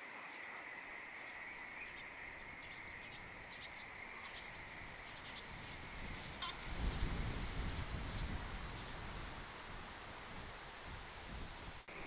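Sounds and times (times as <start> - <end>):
small birds chirping: 1.2 - 7.1.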